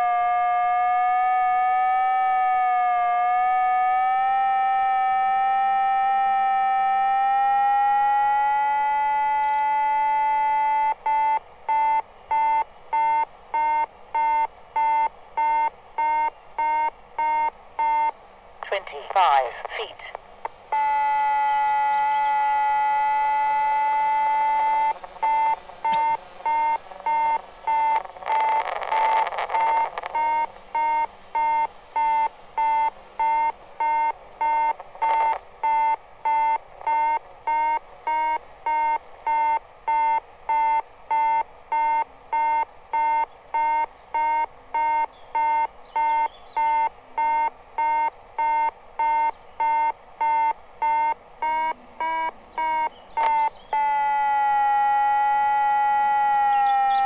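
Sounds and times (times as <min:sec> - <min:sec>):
electronic beeping tone: 0:08.8 - 0:20.0, 0:20.8 - 0:57.0.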